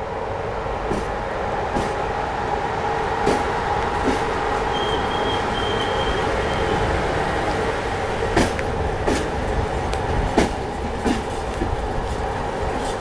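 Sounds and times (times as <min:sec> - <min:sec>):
train rumbling on rails: 0:00.0 - 0:13.0
wheels clicking over rail joints: 0:03.2 - 0:13.0.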